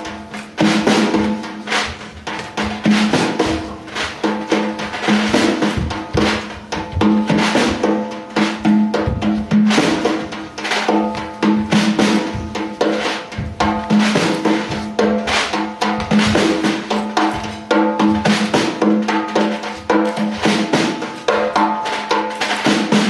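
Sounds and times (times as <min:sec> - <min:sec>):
frame drum played by hand: 0:00.0 - 0:23.0.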